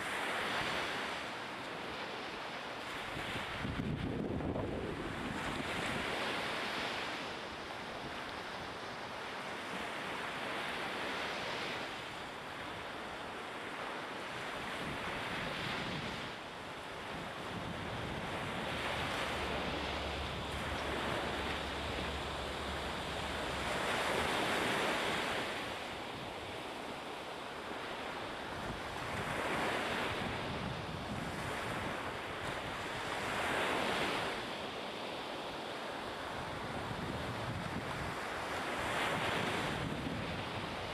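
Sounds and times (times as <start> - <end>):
wind: 0.0 - 40.9
harbour water rushing: 13.7 - 34.5.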